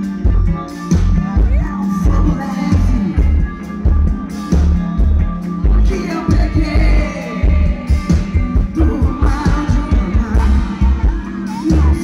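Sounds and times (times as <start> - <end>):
heavy bass beat: 0.0 - 12.0
live band music: 0.0 - 12.0
woman singing: 1.1 - 3.4, 5.8 - 12.0.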